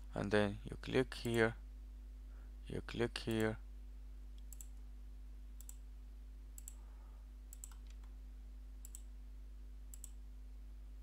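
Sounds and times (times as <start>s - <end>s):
steady low hum: 0.0s - 11.0s
computer mouse clicking: 4.4s - 4.8s, 5.6s - 5.8s, 6.6s - 6.8s, 7.5s - 8.1s, 8.8s - 9.1s, 9.9s - 10.2s.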